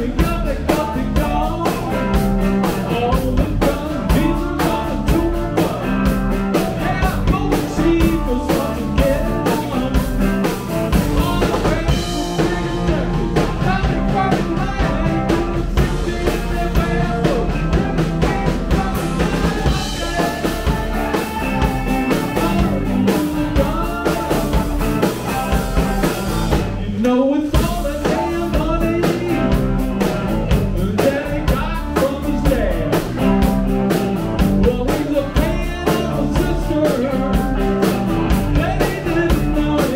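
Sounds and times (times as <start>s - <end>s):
live rock band playing: 0.0s - 39.9s
guitar slide: 3.7s - 26.8s
woman singing lead: 11.1s - 25.4s.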